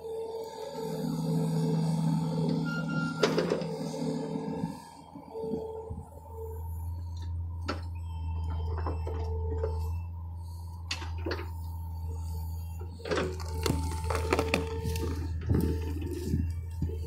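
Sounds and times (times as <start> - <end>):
engine whining tone: 0.0 - 17.0
excavator diesel engine droning: 0.0 - 17.0.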